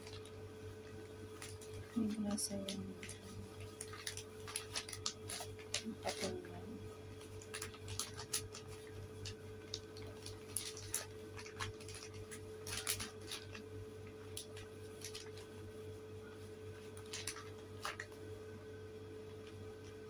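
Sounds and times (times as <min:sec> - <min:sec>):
paper and plastic crinkling: 0:00.0 - 0:00.3, 0:00.9 - 0:06.5, 0:07.1 - 0:15.6, 0:16.8 - 0:18.2
electrical hum: 0:00.0 - 0:20.0.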